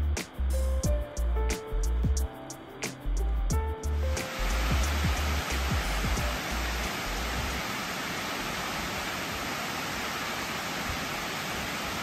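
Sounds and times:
rushing roar of falling water: 4.0s - 12.0s.

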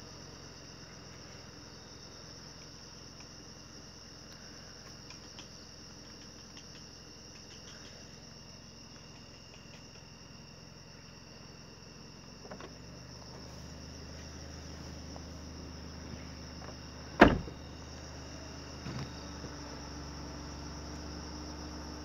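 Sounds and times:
insects chirring: 0.0s - 22.0s
faint clicks: 4.3s - 8.1s.

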